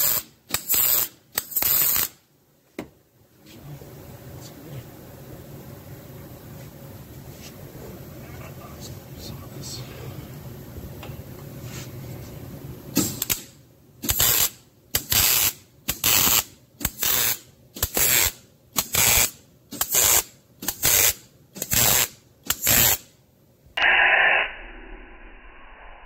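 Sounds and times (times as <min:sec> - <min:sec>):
welding arc crackling: 0:00.0 - 0:02.2, 0:14.1 - 0:23.0.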